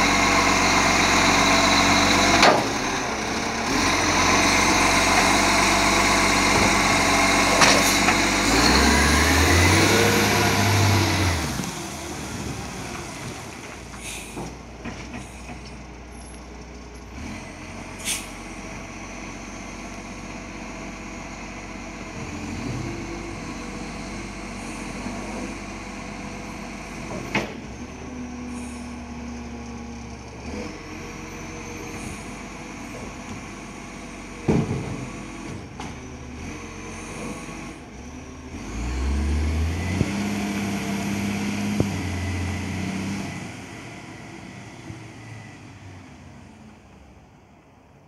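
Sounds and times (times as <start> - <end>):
engine revving with whine: 0.0 - 13.4, 34.5 - 46.4
diesel engine running: 0.0 - 47.8.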